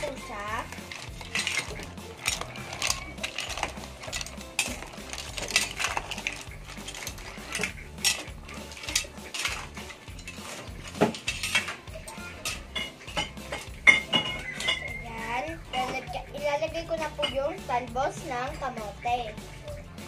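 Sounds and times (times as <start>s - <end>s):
mussel shells clinking in metal pot: 0.0s - 16.2s.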